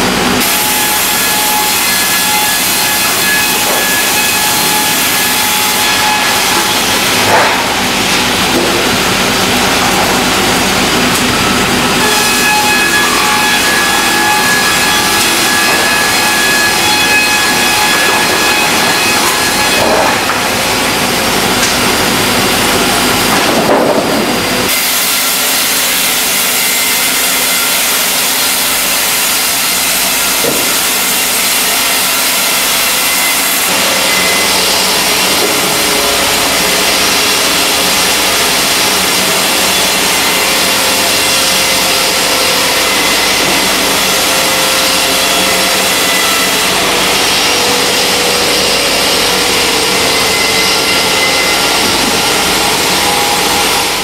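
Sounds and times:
sawmill machinery din: 0.0s - 54.0s.

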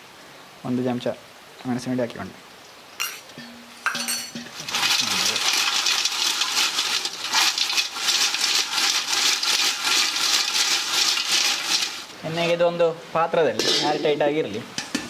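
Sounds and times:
chips clattering in metal vessel: 3.8s - 12.2s.

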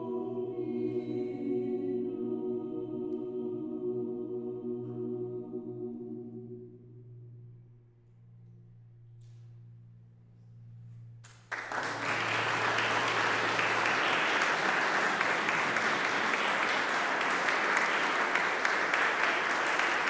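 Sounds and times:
audience applause: 11.5s - 20.0s
choir final chord ringing: 11.8s - 20.0s.

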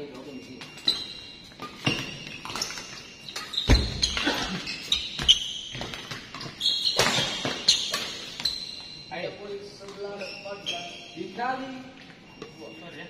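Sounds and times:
shoes squeaking on court floor: 0.0s - 13.0s
rackets hitting shuttlecock: 5.2s - 8.4s.

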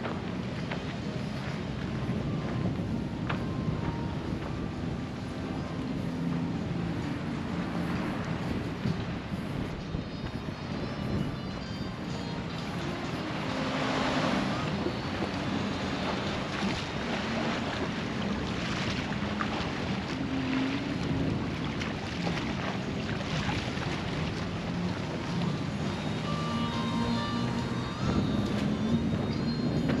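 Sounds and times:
wind over open water: 0.0s - 30.0s
waves lapping against rocks: 12.3s - 26.3s.

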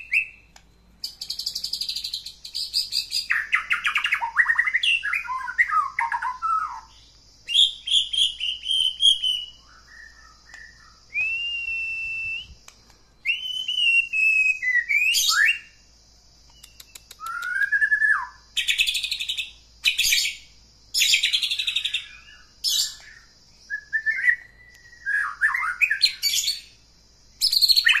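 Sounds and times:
bird whistling song: 0.0s - 15.9s, 16.5s - 26.8s, 27.4s - 28.0s
steady high hiss: 0.0s - 28.0s.

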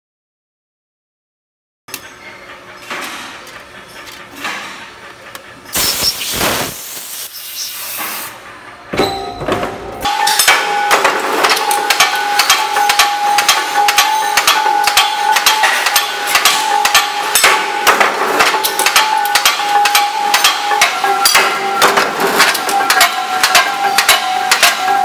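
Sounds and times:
steady machine whine: 1.9s - 25.0s
loud burst of hiss: 5.7s - 8.3s
steel plates clinking and clanking: 9.0s - 25.0s.

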